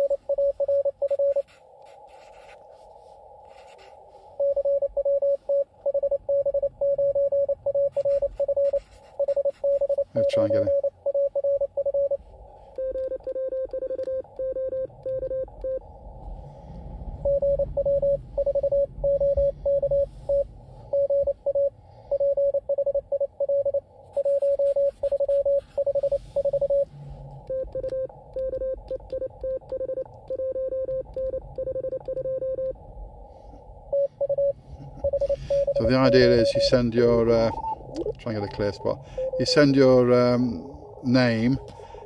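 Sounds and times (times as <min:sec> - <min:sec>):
morse code tone: 0:00.0 - 0:01.6, 0:04.4 - 0:12.2, 0:12.8 - 0:15.8, 0:17.2 - 0:26.9, 0:27.5 - 0:32.8, 0:33.9 - 0:40.4
faint higher morse signal: 0:00.0 - 0:15.8, 0:17.2 - 0:26.9, 0:27.5 - 0:32.8, 0:33.8 - 0:42.0
radio band noise hiss: 0:34.6 - 0:42.0.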